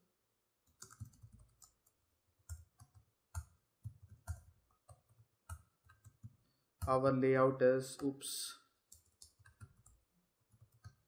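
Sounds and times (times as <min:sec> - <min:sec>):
keyboard typing clicks: 0:00.7 - 0:01.9, 0:08.9 - 0:11.0.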